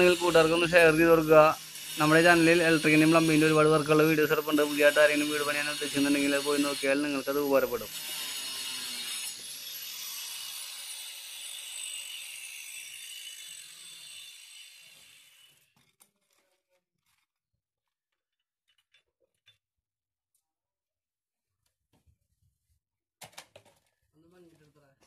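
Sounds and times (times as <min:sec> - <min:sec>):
angle grinder cutting plastic pipe: 0:00.0 - 0:18.0.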